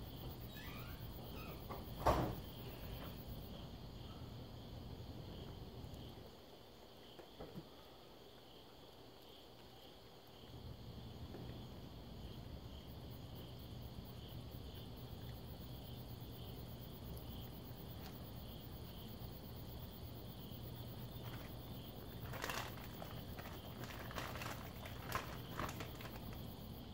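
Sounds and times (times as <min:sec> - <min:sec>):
crickets chirping: 0:00.0 - 0:26.9
rustling clatter: 0:21.2 - 0:26.5.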